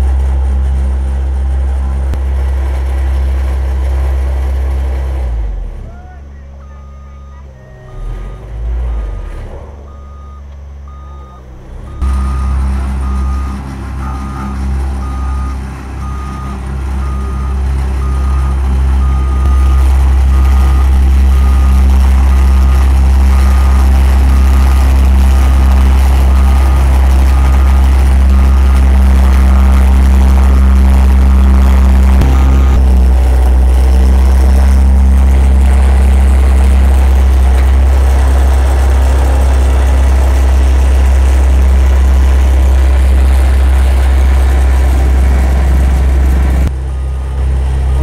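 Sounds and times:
gravel being compacted: 0:00.0 - 0:06.0, 0:06.6 - 0:48.0
road roller diesel engine rumble: 0:00.0 - 0:48.0
reversing alarm beeping: 0:06.0 - 0:33.0, 0:46.6 - 0:48.0.

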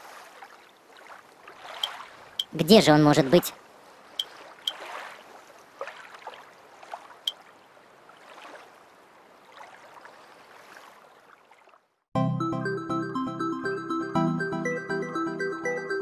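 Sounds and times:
gentle waves: 0:00.0 - 0:12.1.

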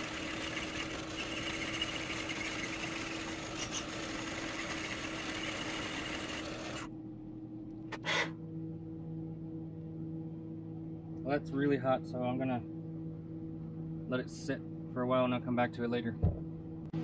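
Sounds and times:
metal lathe cutting: 0:00.0 - 0:06.9.

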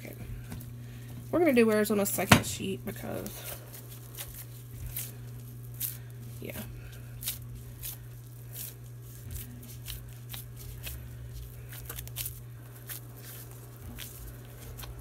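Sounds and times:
steady low hum: 0:00.0 - 0:15.0
wet pats and squishes of meat: 0:03.2 - 0:15.0.

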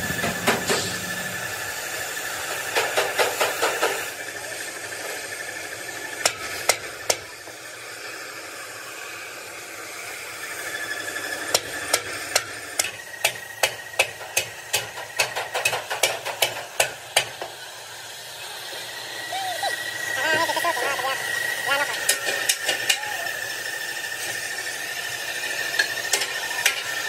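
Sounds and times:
hammer striking steel plate: 0:00.0 - 0:01.8, 0:11.9 - 0:17.5
workshop hiss: 0:00.0 - 0:27.0.

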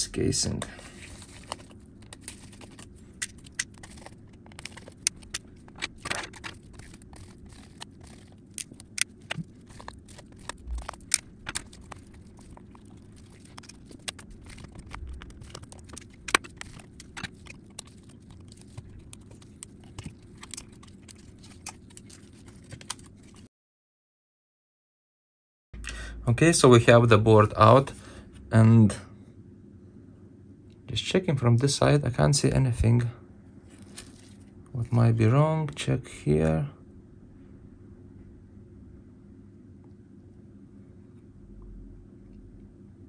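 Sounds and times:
low steady hum: 0:00.0 - 0:23.5, 0:25.8 - 0:43.0
small tools clicking and scraping: 0:01.1 - 0:23.5.

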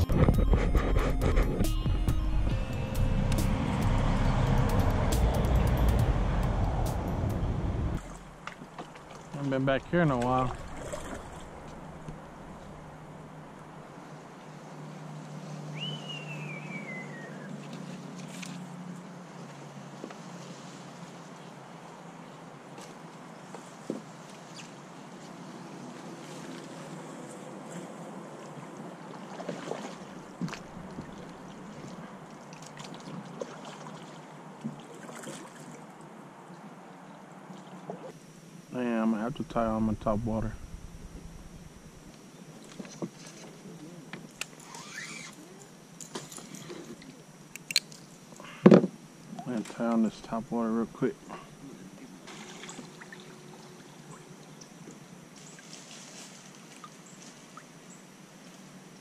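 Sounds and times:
paddle water swishing and dripping: 0:08.0 - 0:12.9, 0:17.1 - 0:22.1, 0:22.7 - 0:38.2, 0:52.2 - 0:57.8.

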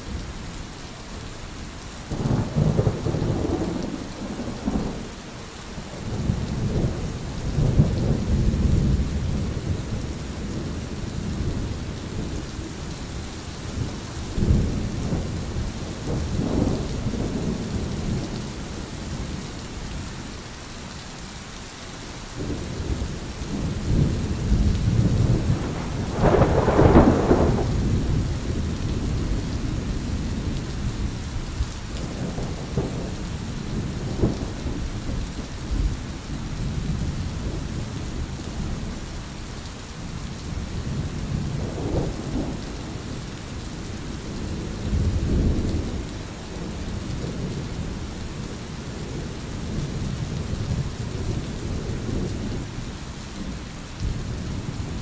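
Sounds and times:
rain hiss: 0:00.0 - 0:55.0
thunder rolling: 0:22.4 - 0:31.1.

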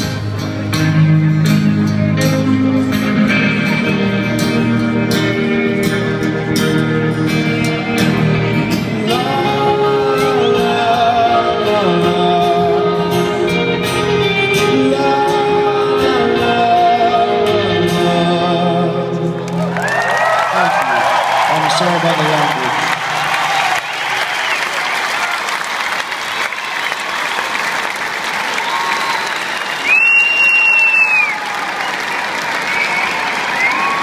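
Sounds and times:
acoustic guitar strumming: 0:00.0 - 0:19.5
man singing: 0:02.2 - 0:19.4.

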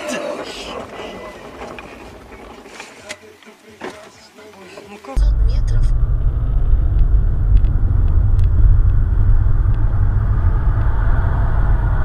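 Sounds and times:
car driving rumble: 0:05.2 - 0:12.0.

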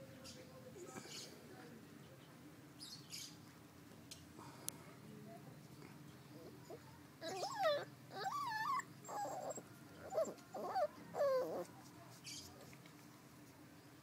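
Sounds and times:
puppies whining and yelping: 0:06.4 - 0:11.7.

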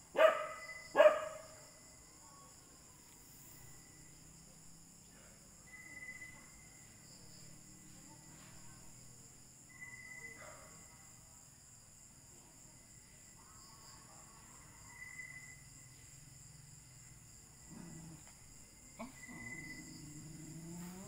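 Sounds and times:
crickets trilling: 0:00.0 - 0:21.0.

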